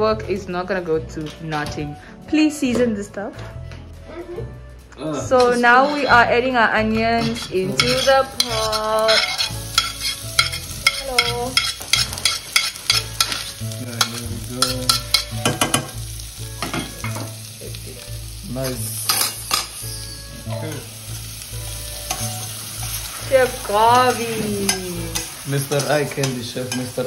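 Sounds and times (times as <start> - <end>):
onions sizzling in a pot: 5.0 - 27.0
knife scraping a plate: 7.2 - 11.0
spoon stirring in a pot: 7.2 - 15.9.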